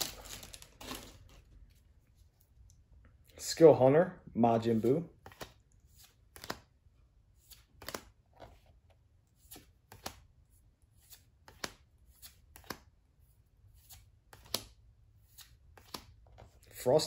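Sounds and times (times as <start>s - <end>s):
cards flicking and sliding: 4.8s - 6.8s, 7.4s - 8.6s, 9.3s - 12.9s, 13.7s - 16.6s.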